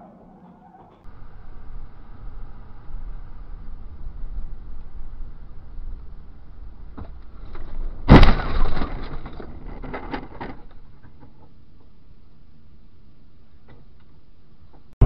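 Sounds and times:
low steady hum: 0.0 - 14.8
low road noise: 0.0 - 15.0
loud car crash: 6.9 - 10.7
crunching and clattering: 6.9 - 11.9.

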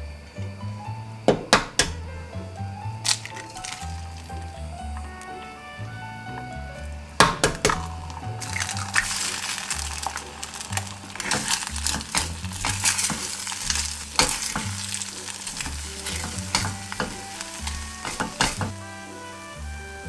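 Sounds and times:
background music with bass: 0.0 - 20.0
eggs sizzling in a frying pan: 0.6 - 20.0
spatula scraping a pan: 8.4 - 19.3.

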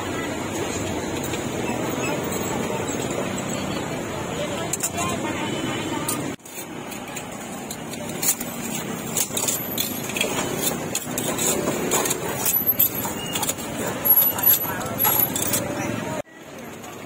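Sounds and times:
motor traffic passing: 0.0 - 16.2
sharp clicks and clinks: 6.1 - 17.0.

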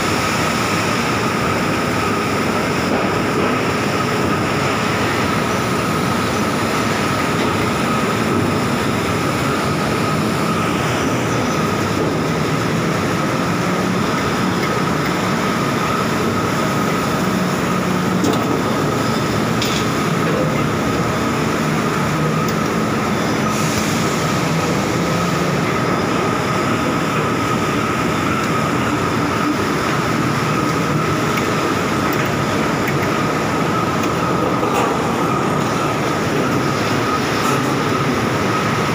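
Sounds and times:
constant high machine tone: 0.0 - 38.9.

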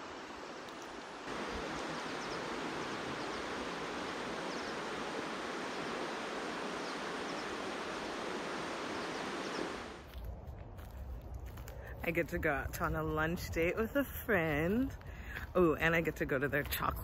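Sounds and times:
outdoor rushing hiss: 1.0 - 10.0.

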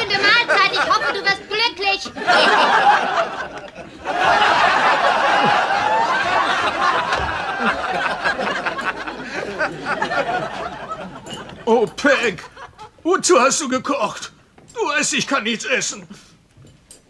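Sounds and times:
studio audience laughing: 0.0 - 11.7.

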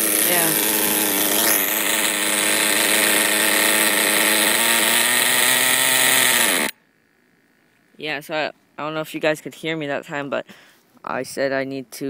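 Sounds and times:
nitro engine idling: 0.0 - 6.8.

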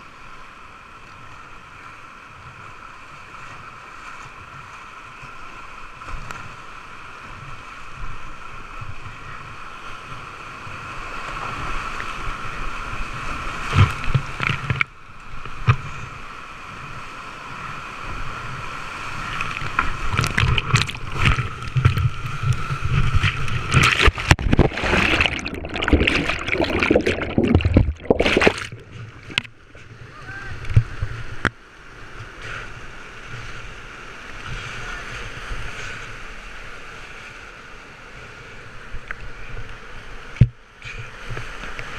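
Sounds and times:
paddle strokes: 18.9 - 31.5
whitewater rapids rushing: 19.0 - 31.0
water splashing: 19.1 - 31.0.

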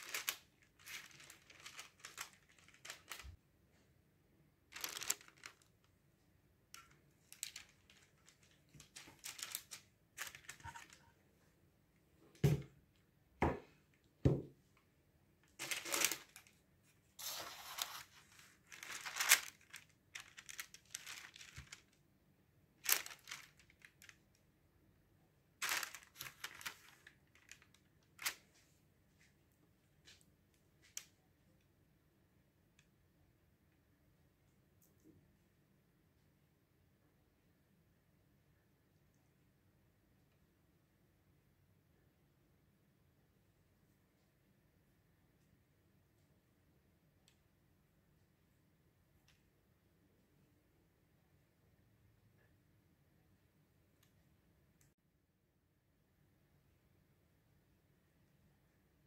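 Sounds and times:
baking paper rustling: 0.0 - 3.4, 4.7 - 5.7, 6.8 - 11.2, 15.4 - 22.0, 22.8 - 24.3, 25.6 - 28.7.

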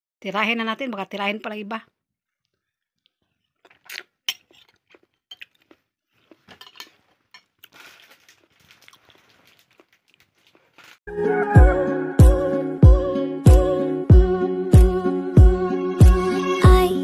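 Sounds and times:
metal spoon scraping ceramic plate: 6.5 - 7.5.

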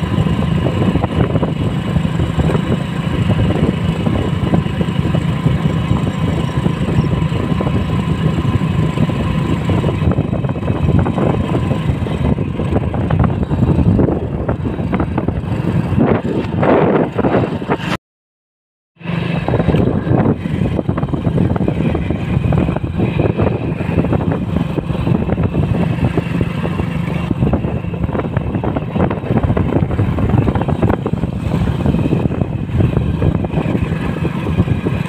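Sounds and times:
motorcycle engine running: 0.0 - 18.0, 19.0 - 35.0.

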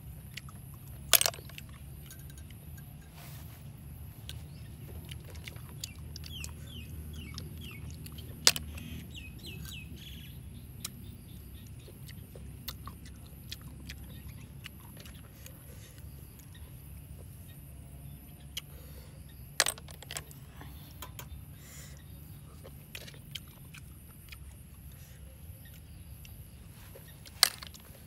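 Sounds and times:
low background rumble: 0.0 - 28.0
snail shells clicking: 0.2 - 3.0, 4.2 - 10.2, 19.4 - 21.8, 25.6 - 28.0
bird chirping: 4.1 - 28.0.

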